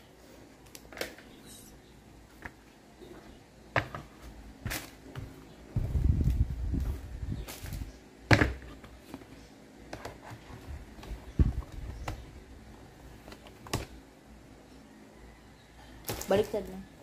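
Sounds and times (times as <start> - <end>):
low rumbling handling noise: 3.8 - 8.9.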